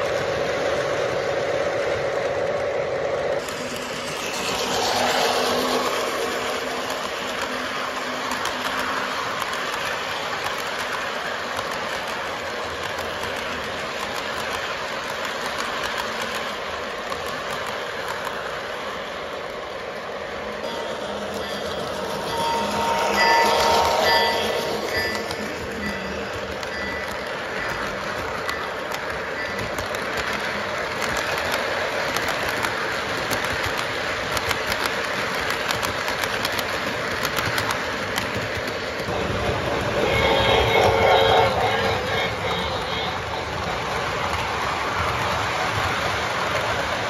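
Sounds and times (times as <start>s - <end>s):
model train wheels rumbling on rails: 0.0s - 47.0s
quick irregular clicks: 3.4s - 18.6s, 25.1s - 39.1s.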